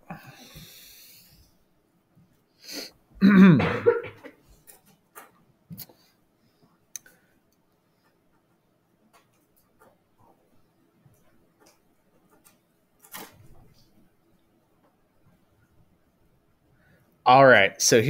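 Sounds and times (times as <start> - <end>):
man clearing his throat: 3.2 - 4.2.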